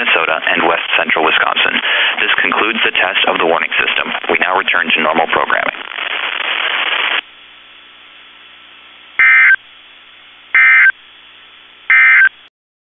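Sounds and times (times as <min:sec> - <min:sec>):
faint hum: 0:00.0 - 0:12.5
radio static hiss: 0:00.0 - 0:12.5
alert data tone bursts: 0:09.2 - 0:09.6, 0:10.6 - 0:11.0, 0:11.9 - 0:12.3.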